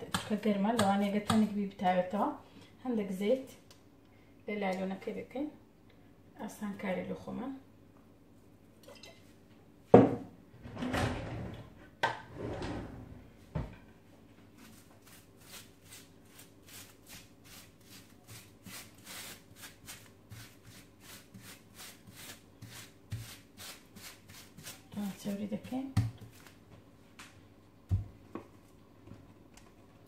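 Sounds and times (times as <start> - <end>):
hands rubbing cling film: 14.5 - 25.4.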